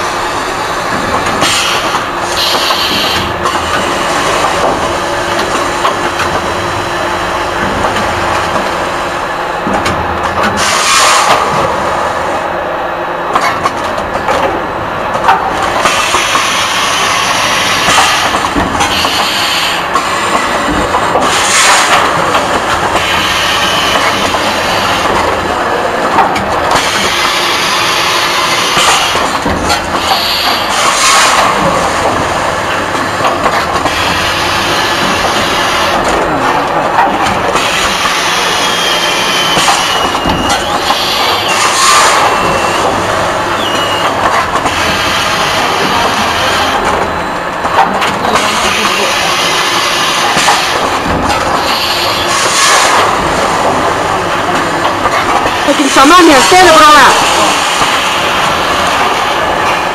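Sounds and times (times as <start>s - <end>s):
pneumatic air hiss: 1.4s - 3.3s, 10.6s - 11.4s, 15.8s - 20.3s, 30.0s - 31.5s, 51.6s - 53.0s
machine mechanical clatter: 7.4s - 8.8s, 13.3s - 56.8s.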